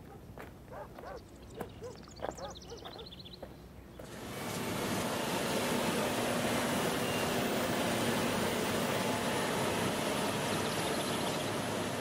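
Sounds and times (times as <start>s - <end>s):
model truck running: 4.1s - 12.0s.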